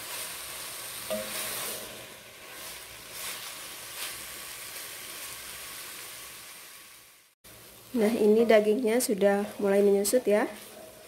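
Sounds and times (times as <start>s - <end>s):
meat sizzling in a wok: 0.0s - 11.0s
wooden spatula scraping: 1.1s - 4.3s, 8.4s - 11.0s.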